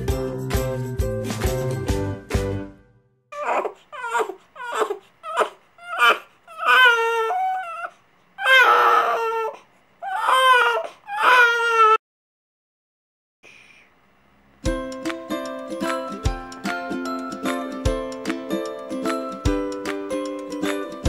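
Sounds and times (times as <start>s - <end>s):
baby crying: 3.3s - 12.0s.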